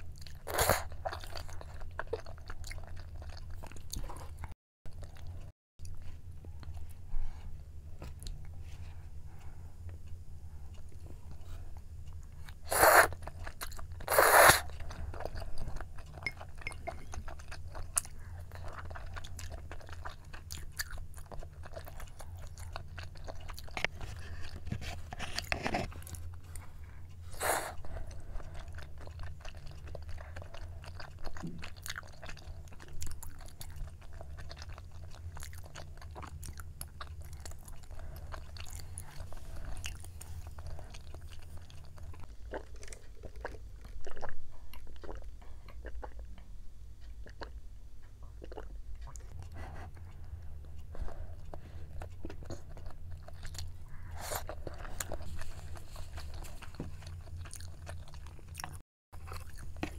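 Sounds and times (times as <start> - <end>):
chewing with wet mouth clicks: 0.0 - 6.9, 9.4 - 59.9
person slurping noodles: 14.1 - 14.7.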